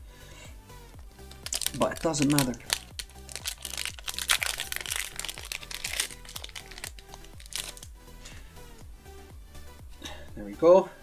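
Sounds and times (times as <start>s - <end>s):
background music: 0.0s - 11.0s
foil wrapper crinkling: 1.3s - 7.9s.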